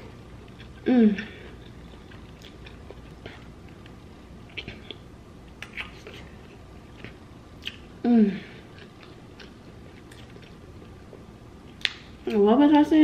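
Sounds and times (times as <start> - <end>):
close chewing: 1.5 - 3.9, 8.7 - 11.0
wet mouth clicks and lip smacks: 11.8 - 12.1.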